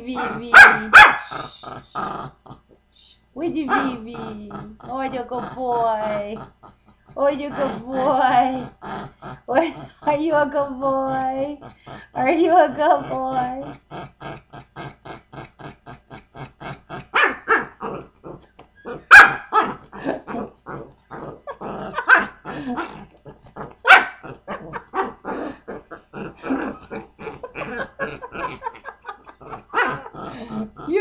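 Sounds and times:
dog growling: 0:00.0 - 0:02.9, 0:03.5 - 0:31.0
dog barking: 0:00.2 - 0:01.3, 0:17.2 - 0:17.7, 0:19.0 - 0:19.8, 0:22.0 - 0:22.4, 0:23.8 - 0:25.2, 0:29.7 - 0:30.1.

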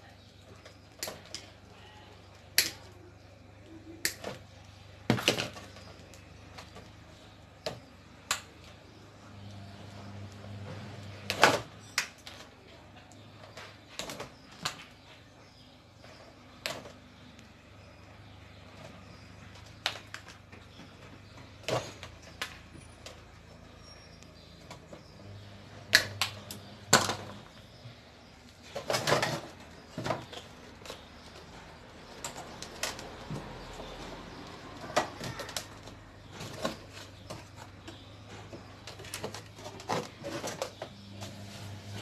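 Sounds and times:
faint low hum: 0:00.0 - 0:42.0.

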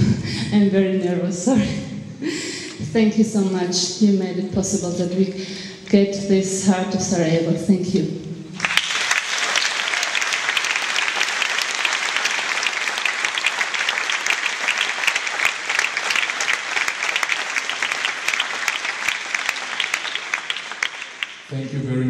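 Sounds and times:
audience applauding: 0:08.6 - 0:21.6.

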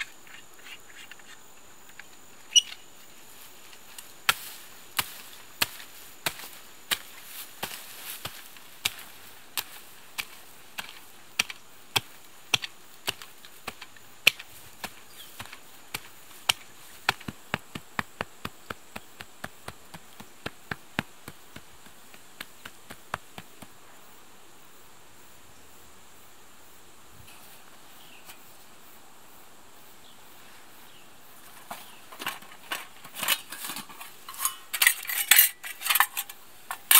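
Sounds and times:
digging tool chopping soil: 0:04.2 - 0:23.7.

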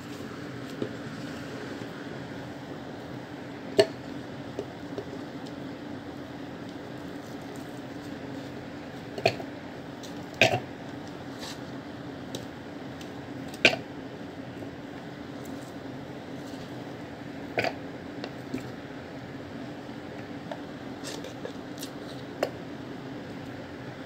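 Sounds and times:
steady low hum: 0:00.0 - 0:24.0.

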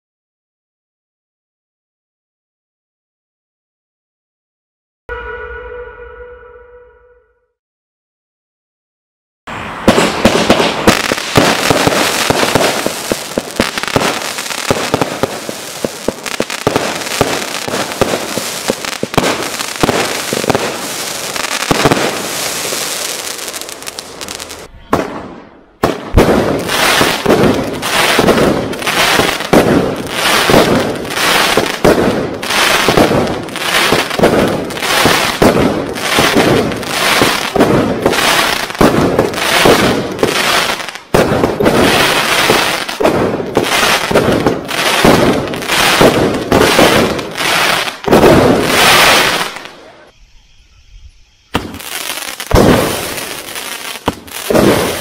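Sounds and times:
firework barrage shots: 0:09.7 - 0:55.0
fireworks crackling shots: 0:09.8 - 0:50.3, 0:51.5 - 0:55.0.

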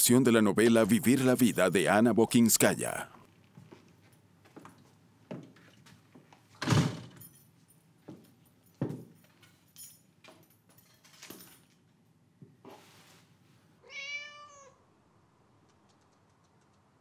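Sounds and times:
soft knocks and thuds: 0:08.8 - 0:09.1
cat meowing: 0:13.8 - 0:14.9.

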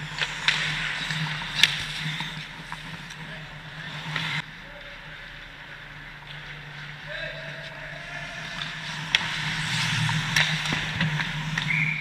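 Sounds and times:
skate blades scraping on ice: 0:00.0 - 0:04.4, 0:07.7 - 0:12.0.

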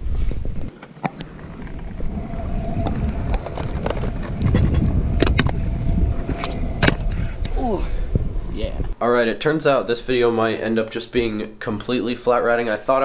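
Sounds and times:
wind rumble on microphone: 0:00.0 - 0:09.0
scooter wheels rolling on concrete: 0:00.2 - 0:09.0.

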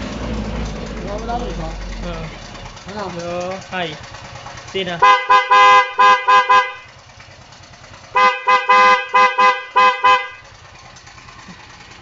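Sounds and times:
motorcycle horn short beeps: 0:05.0 - 0:06.9, 0:08.2 - 0:10.5.

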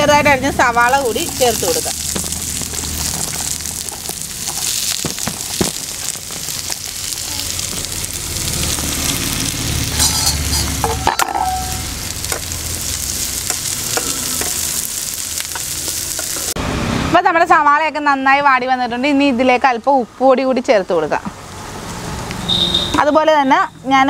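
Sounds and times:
onions sizzling in oil: 0:00.0 - 0:16.6.

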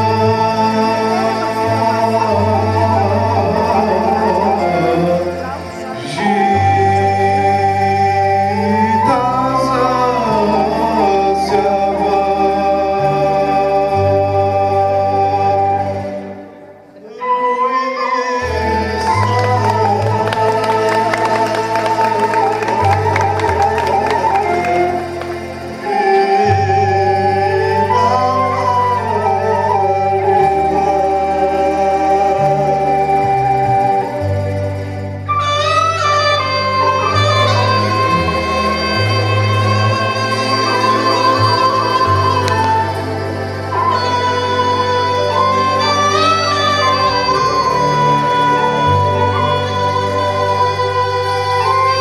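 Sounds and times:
folk band playing: 0:00.0 - 0:52.0
steady bass: 0:18.4 - 0:52.0.

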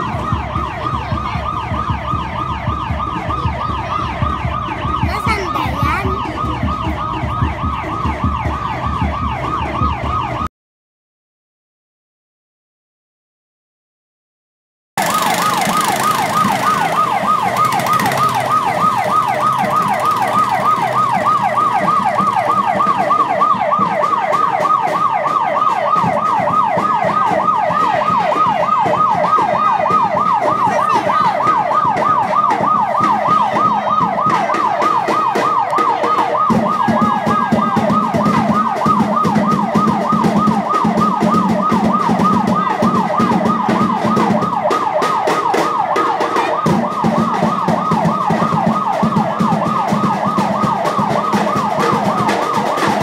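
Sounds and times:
electronic yelp siren: 0:00.0 - 0:10.5, 0:15.0 - 0:53.0.

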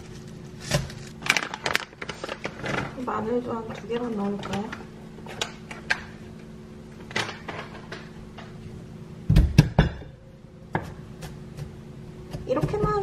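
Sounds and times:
knife chopping on wooden board: 0:10.7 - 0:13.0.

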